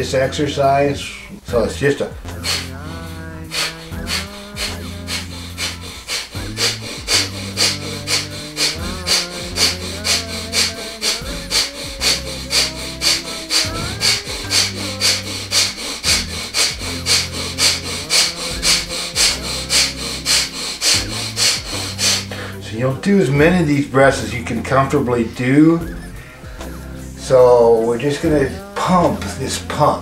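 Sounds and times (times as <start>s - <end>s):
soft background music: 0.0s - 30.0s
man's rapid forceful exhalations: 2.2s - 22.6s.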